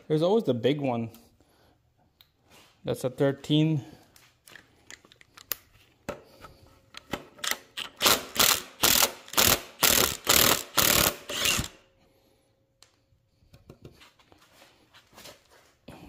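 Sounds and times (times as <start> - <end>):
impact wrench hammering: 8.0 - 11.7.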